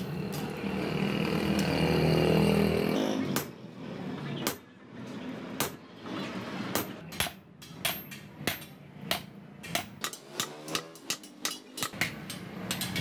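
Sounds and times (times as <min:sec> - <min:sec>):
hammer striking metal on anvil: 0:06.7 - 0:13.0.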